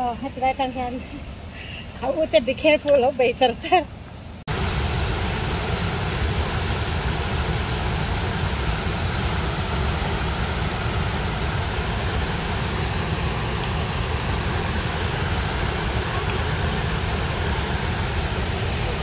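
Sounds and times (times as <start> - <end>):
water rushing over spillway: 4.5 - 19.0.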